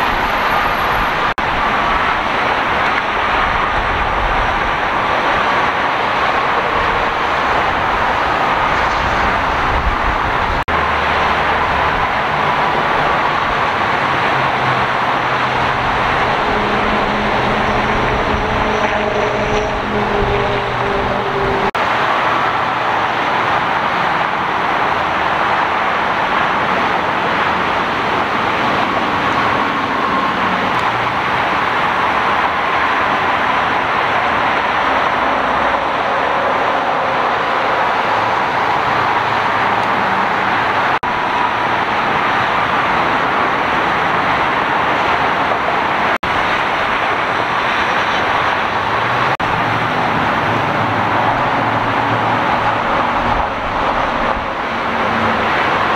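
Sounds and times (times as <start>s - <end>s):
freeway traffic rushing: 0.0s - 55.9s.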